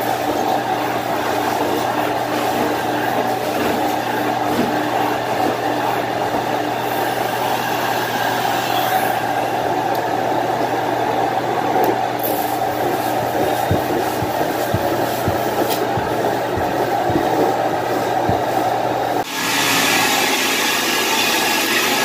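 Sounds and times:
carpet-cleaning machine droning: 0:00.0 - 0:22.0
low knocks: 0:13.3 - 0:17.6.

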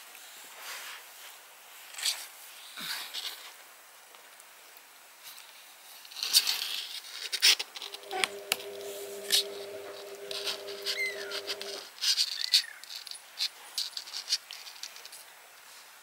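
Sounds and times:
kittens scratching on cardboard: 0:06.2 - 0:15.3
steady hum: 0:07.7 - 0:11.9.

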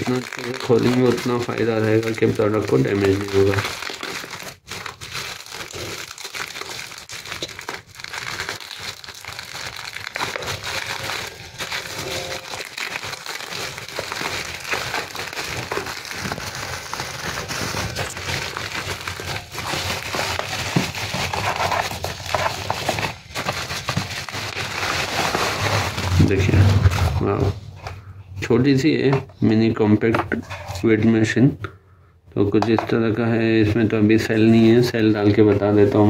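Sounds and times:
bubble wrap crinkling: 0:00.0 - 0:28.0.

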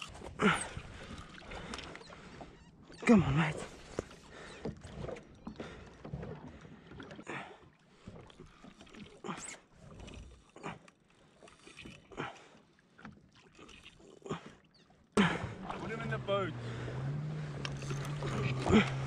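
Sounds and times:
waves slapping against hull: 0:00.0 - 0:19.0.

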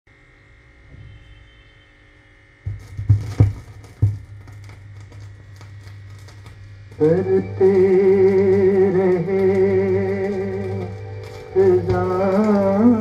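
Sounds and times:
stylus landing thumps: 0:02.7 - 0:06.5
vinyl surface crackle and clicks: 0:02.7 - 0:13.0.

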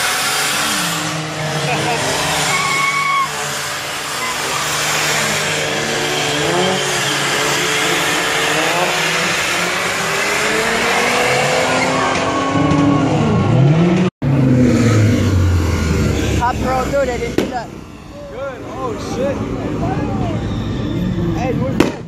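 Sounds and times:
car engine revving: 0:00.0 - 0:22.0
tires squealing on pavement: 0:00.0 - 0:22.0.

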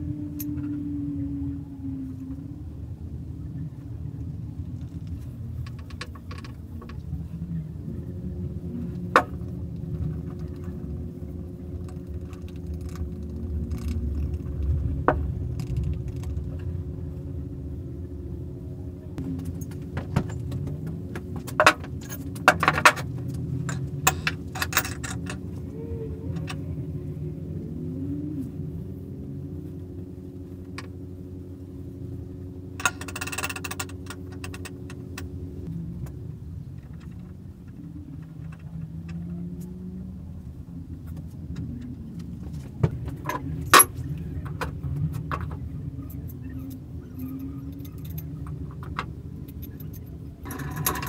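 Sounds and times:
steady low hum: 0:00.0 - 0:51.0
metal parts clinking on workbench: 0:23.6 - 0:25.4, 0:32.8 - 0:35.3, 0:49.5 - 0:51.0.

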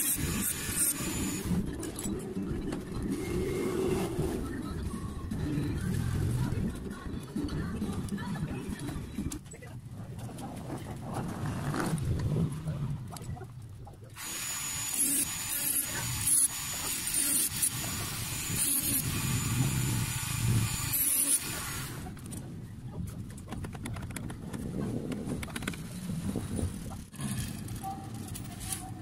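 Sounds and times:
rotary tool grinding sheet metal: 0:00.0 - 0:01.6, 0:14.2 - 0:22.0.

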